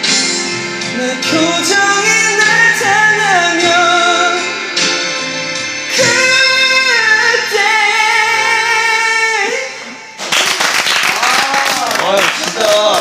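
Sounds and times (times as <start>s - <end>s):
instrumental accompaniment: 0.0s - 11.3s
man singing a ballad: 0.8s - 5.2s, 5.8s - 10.1s.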